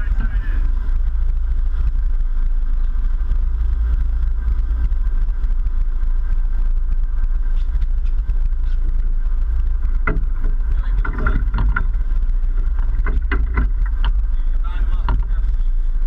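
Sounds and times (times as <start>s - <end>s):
boat engines rumbling: 0.0s - 16.0s
churning water: 8.3s - 16.0s.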